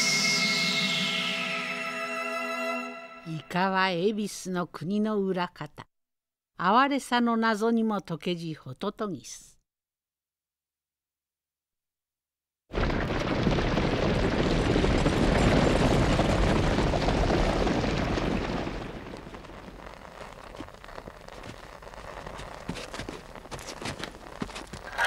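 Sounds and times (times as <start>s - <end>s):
rushing storm wind: 12.8s - 23.7s
faint crackles: 12.8s - 25.0s.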